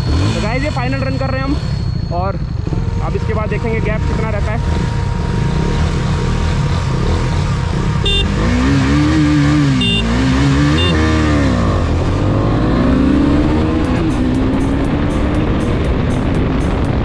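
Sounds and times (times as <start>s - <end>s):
motorcycle engines accelerating: 0.0s - 17.0s
wind rumble on microphone: 13.0s - 17.0s.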